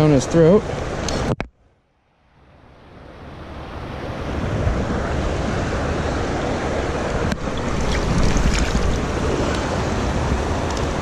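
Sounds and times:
river water rushing: 3.0 - 11.0.

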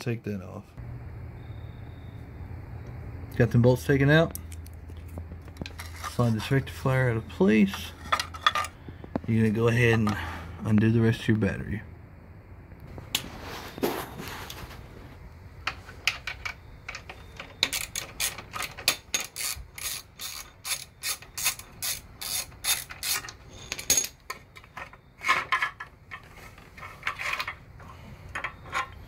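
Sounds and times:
clattering handling sounds: 4.3 - 6.8, 7.6 - 10.3, 22.5 - 29.0
socket ratchet clicking: 16.9 - 23.4.

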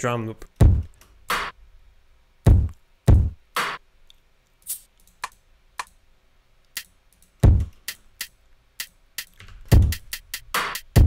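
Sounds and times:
deep kick drum hits: 0.6 - 0.9, 2.5 - 3.4, 7.4 - 7.7, 9.8 - 10.0
noisy snare-like hit: 0.6 - 1.5, 2.5 - 3.8, 9.2 - 11.0.

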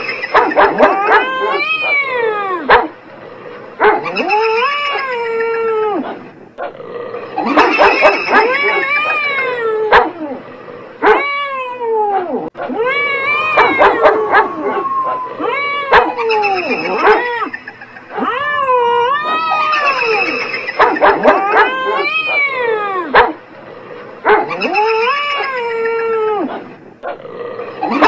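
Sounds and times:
cats yowling and meowing: 0.0 - 2.7, 4.0 - 6.2, 7.3 - 10.4, 11.0 - 23.2, 24.4 - 26.7, 27.7 - 28.0
dog barking: 0.3 - 2.1, 2.7 - 2.9, 7.5 - 9.2, 9.9 - 10.2, 11.0 - 11.2, 13.6 - 14.6, 15.9 - 16.2, 16.8 - 17.3, 20.8 - 22.5, 23.1 - 23.4, 24.2 - 24.6.

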